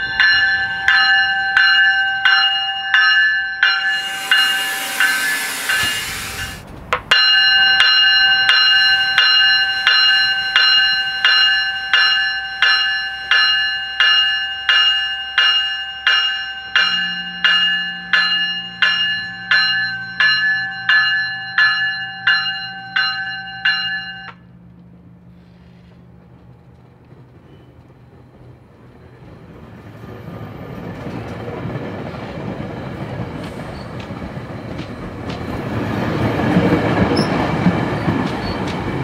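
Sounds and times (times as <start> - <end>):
train bell ringing: 0.0 - 24.6, 33.7 - 38.7
loud hiss: 3.8 - 6.7
low engine drone: 3.8 - 6.7.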